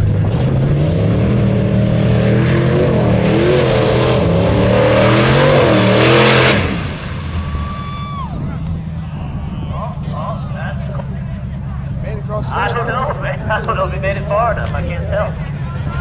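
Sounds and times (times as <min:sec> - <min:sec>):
truck engine revving hard: 0:00.0 - 0:10.1.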